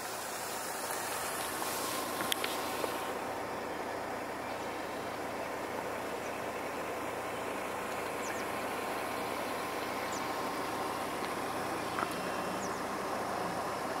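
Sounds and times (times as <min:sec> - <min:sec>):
vehicle hum and hiss: 0:00.0 - 0:14.0
faint bird chirps: 0:03.4 - 0:10.7.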